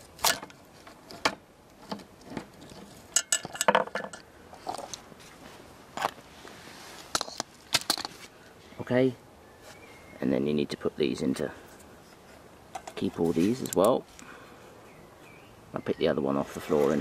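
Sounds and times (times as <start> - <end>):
metal valve parts clicking: 2.6 - 4.3.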